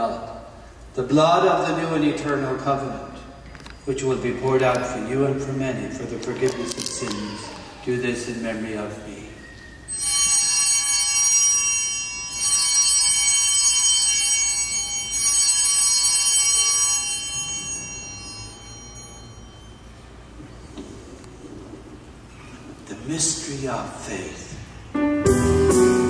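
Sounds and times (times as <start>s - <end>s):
altar bells ringing: 9.7s - 20.8s.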